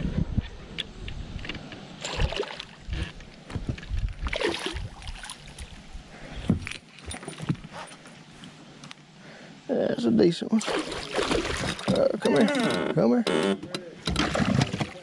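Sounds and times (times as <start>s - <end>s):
fish splashing and thrashing: 2.0s - 5.8s, 10.6s - 12.2s, 14.1s - 15.0s.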